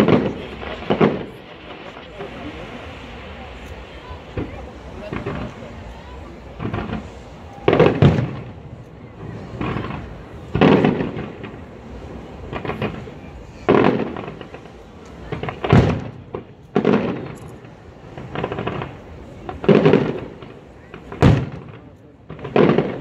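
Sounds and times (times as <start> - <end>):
firework shells bursting: 13.7 - 23.0.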